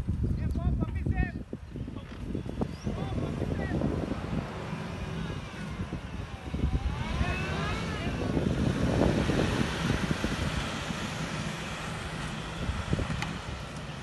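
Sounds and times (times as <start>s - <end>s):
suv engine rumbling under load: 0.0s - 14.0s
voices calling out: 1.7s - 8.7s.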